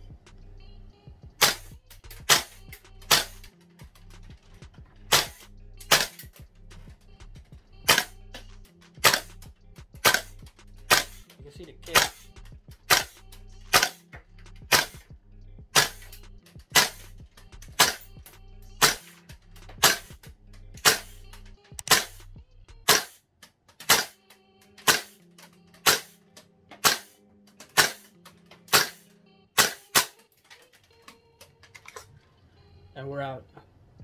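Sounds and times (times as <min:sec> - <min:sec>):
airsoft rifle single shots: 0:01.4 - 0:03.5, 0:05.1 - 0:06.2, 0:07.9 - 0:08.2, 0:10.0 - 0:10.3, 0:10.9 - 0:11.2, 0:12.9 - 0:14.0, 0:14.7 - 0:15.0, 0:15.8 - 0:16.1, 0:16.7 - 0:17.1, 0:17.8 - 0:18.0, 0:18.8 - 0:19.1, 0:19.8 - 0:20.2, 0:21.8 - 0:22.3, 0:22.9 - 0:23.2, 0:23.8 - 0:24.2, 0:24.8 - 0:25.2, 0:25.8 - 0:26.2, 0:26.8 - 0:27.2, 0:27.8 - 0:28.1, 0:28.7 - 0:29.0, 0:29.6 - 0:30.2.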